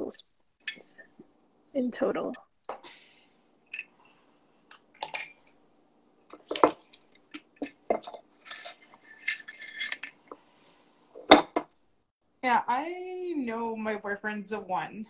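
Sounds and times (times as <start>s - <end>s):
spoon scraping: 6.8s - 10.4s.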